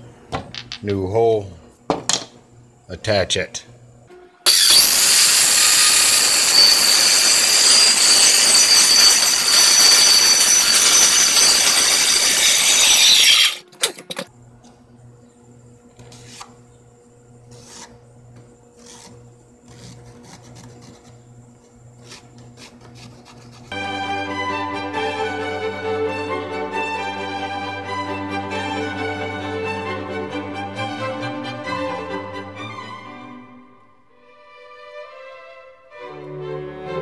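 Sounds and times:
circular saw cutting plywood: 4.5 - 14.1, 17.4 - 18.0, 18.7 - 23.8.

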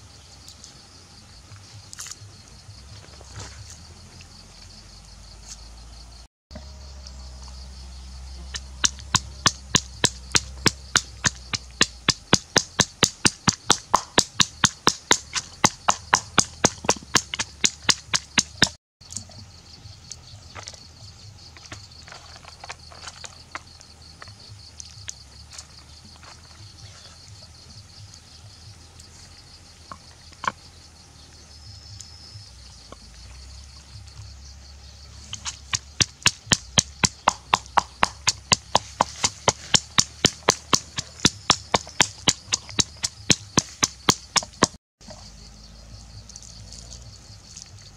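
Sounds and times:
insect hiss: 0.0 - 47.9
pestle pounding in wooden mortar: 8.5 - 18.8, 35.3 - 44.8.

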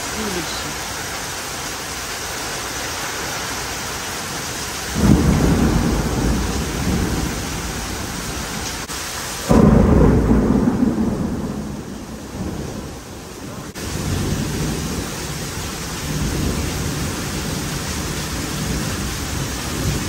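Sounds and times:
heavy rain pouring: 0.0 - 20.0
thunder rumbling: 4.8 - 20.0.

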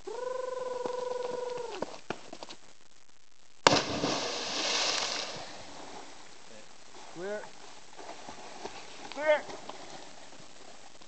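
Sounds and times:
loud splash into water: 3.6 - 5.5.

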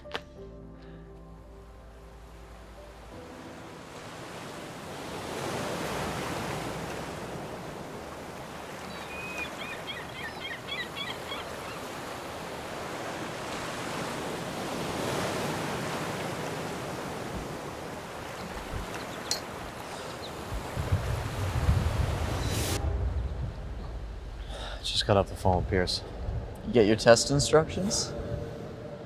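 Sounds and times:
waves washing onto rocky shore: 11.4 - 22.3.

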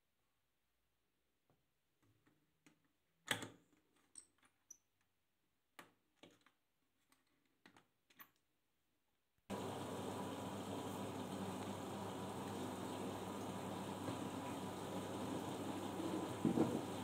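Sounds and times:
washing machine clicks and knocks: 16.2 - 17.0.

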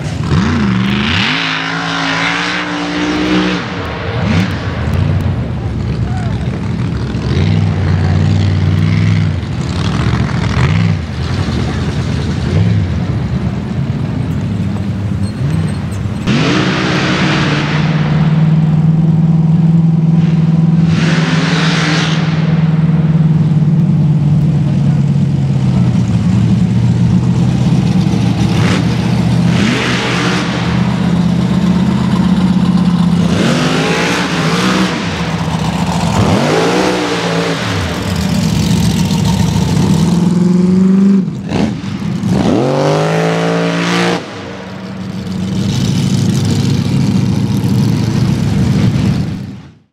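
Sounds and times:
truck engine revving hard: 0.0 - 13.7, 15.0 - 23.8, 24.8 - 49.7.

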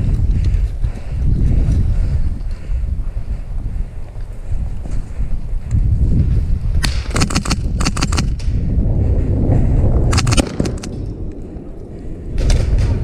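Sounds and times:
wind rumble on microphone: 0.0 - 13.0
airsoft rifles firing bursts: 6.9 - 8.3, 10.1 - 10.9.

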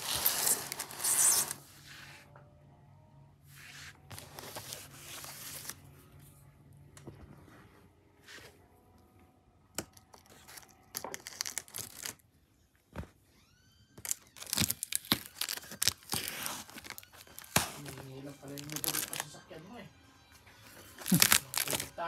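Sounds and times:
plastic wrap tearing and crinkling: 0.0 - 1.6, 9.8 - 12.3, 14.0 - 19.4, 20.8 - 22.0
plastic wrap snap: 21.0 - 22.0.

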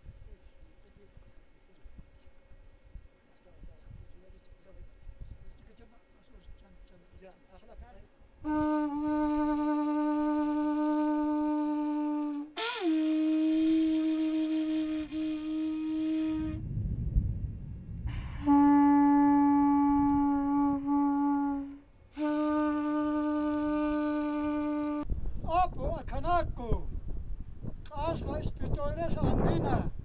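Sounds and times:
horn trumpet blasts: 8.4 - 16.7, 18.1 - 25.1
low rumble: 16.4 - 20.6.

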